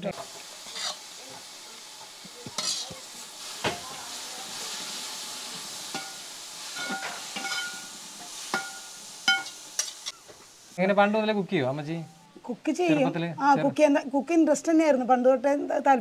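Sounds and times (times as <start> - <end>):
meat sizzling in a pan: 0.0 - 11.0
metal spoon scraping and knocking pan: 2.5 - 3.0, 6.8 - 7.9, 8.5 - 10.1.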